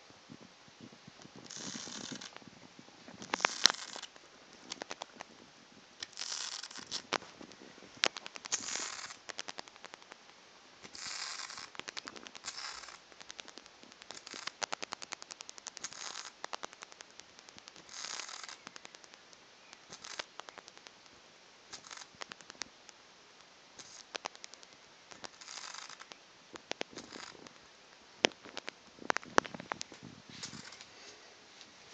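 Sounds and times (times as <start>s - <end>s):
bat wings flapping on fabric: 3.2s - 5.3s, 6.1s - 19.2s, 19.9s - 20.9s, 21.7s - 22.7s, 23.8s - 27.5s
rapid sharp bat clicks: 3.2s - 5.3s, 6.0s - 7.2s, 8.0s - 21.1s, 21.7s - 27.6s.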